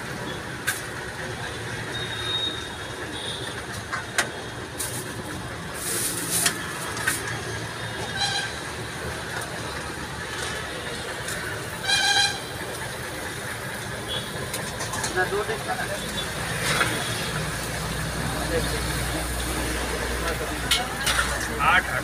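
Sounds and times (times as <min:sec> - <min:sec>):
rumbling street noise: 0:00.0 - 0:22.0
horn-like tone: 0:11.8 - 0:12.4.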